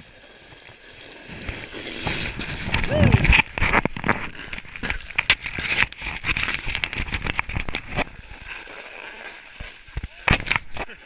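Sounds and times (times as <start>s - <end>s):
snowboard scraping over snow: 0.0s - 10.3s
wind rumble on microphone: 1.4s - 4.9s.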